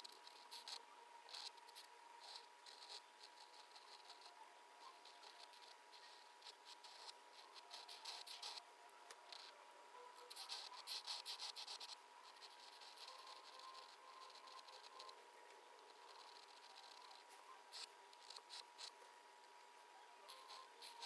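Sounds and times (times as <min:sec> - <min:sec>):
pen scratching on paper: 0:00.0 - 0:08.6, 0:10.3 - 0:15.2, 0:15.8 - 0:19.0.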